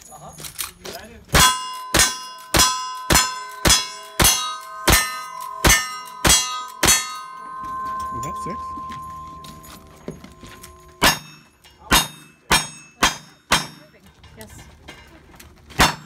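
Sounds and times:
steel target ringing: 0:01.4 - 0:13.9.

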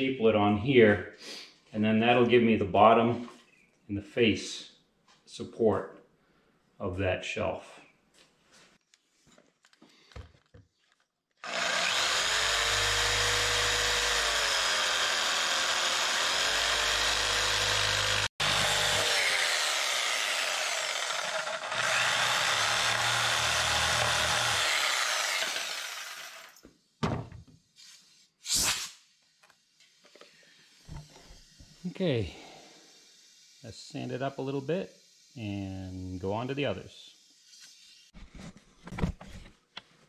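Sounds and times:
jigsaw cutting plywood: 0:11.4 - 0:26.6.

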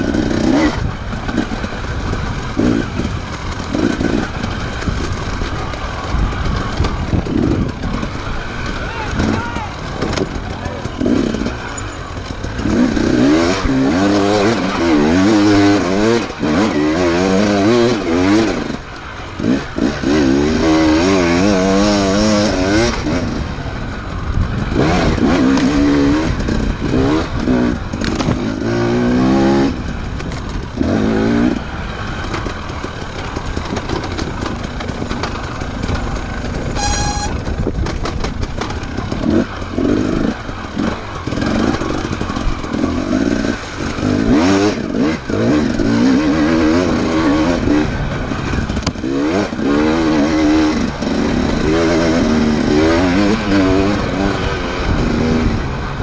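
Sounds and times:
motorcycle engines revving: 0:00.0 - 0:56.0
short high beep: 0:36.8 - 0:37.4.

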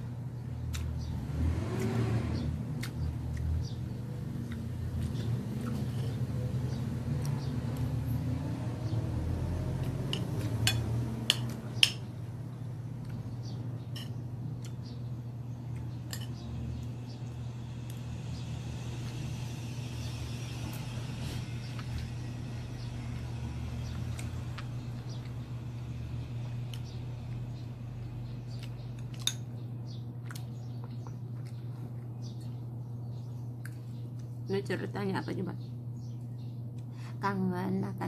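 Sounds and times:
steady low hum: 0:00.0 - 0:38.0
cutlery clinking against a plate: 0:13.9 - 0:14.2, 0:16.1 - 0:16.4.

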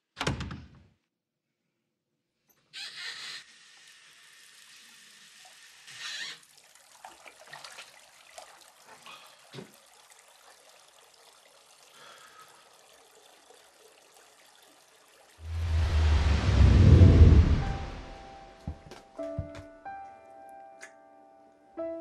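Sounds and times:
water dripping: 0:05.4 - 0:19.5.

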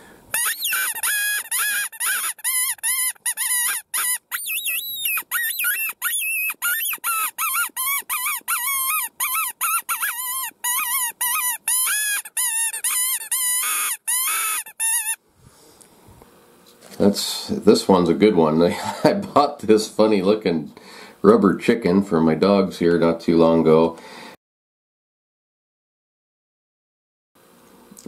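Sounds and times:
squeaker predator call squealing: 0:00.3 - 0:15.2.

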